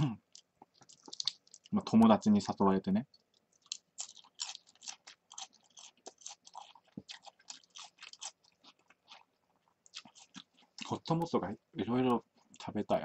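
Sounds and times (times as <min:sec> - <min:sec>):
person chewing crunchy food: 0:00.0 - 0:02.0, 0:03.2 - 0:11.2.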